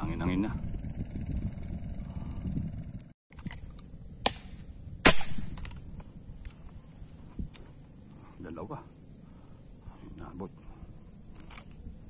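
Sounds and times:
wind rumbling on microphone: 0:00.0 - 0:07.8
high insect whine: 0:00.0 - 0:12.0
speargun shot: 0:04.2 - 0:05.8.

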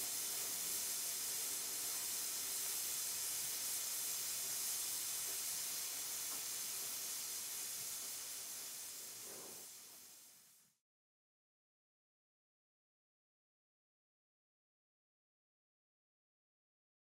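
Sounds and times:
steady high hiss: 0:00.0 - 0:10.8.

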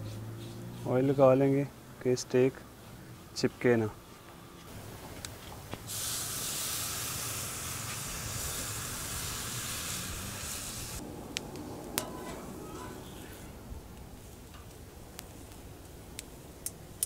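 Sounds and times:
steak sizzling on grill: 0:05.8 - 0:11.0.

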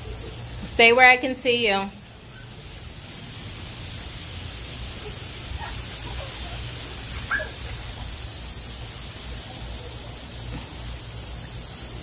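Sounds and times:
sprinkler water spray hissing: 0:00.0 - 0:12.0
high-pitched calls: 0:05.6 - 0:08.0
brief yelp: 0:07.3 - 0:07.6.

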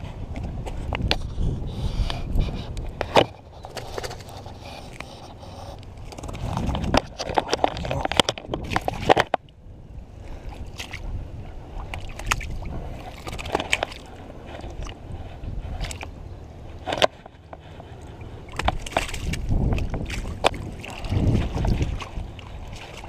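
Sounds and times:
splashing in shallow water: 0:10.3 - 0:23.0.

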